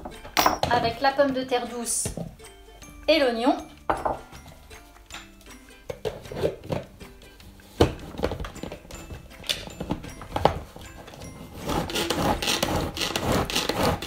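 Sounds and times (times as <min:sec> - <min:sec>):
faint background music: 0:00.0 - 0:14.0
chopper blades chopping vegetables: 0:11.6 - 0:14.0.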